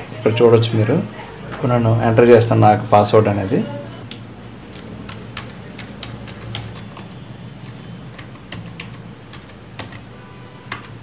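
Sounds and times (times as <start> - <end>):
keyboard keys clicking: 4.1 - 11.0.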